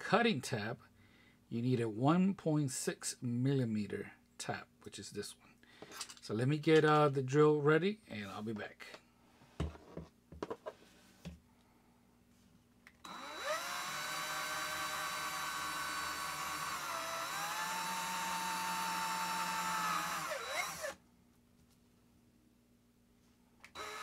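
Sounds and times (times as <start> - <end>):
cordless drill whining: 13.0 - 21.0, 23.7 - 24.0.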